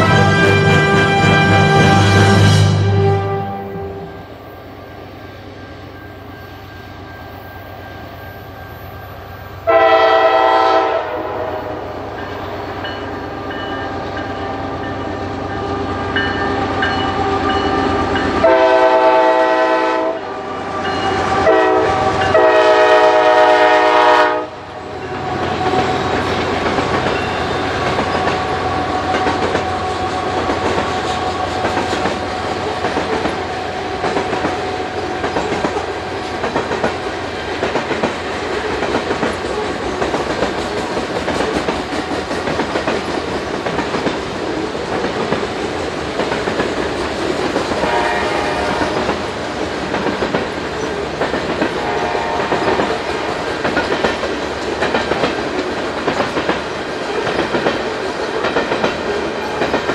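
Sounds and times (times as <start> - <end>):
locomotive air horn: 0.0 - 4.3, 9.7 - 11.9, 18.4 - 24.7, 47.8 - 49.2, 51.8 - 53.0
train wheels clicking over rails: 25.1 - 59.9.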